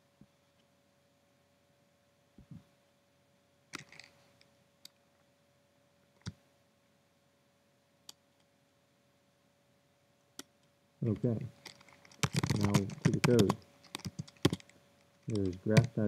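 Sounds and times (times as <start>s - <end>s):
faint steady hum: 0.0s - 16.0s
faint clicks and taps: 10.4s - 16.0s.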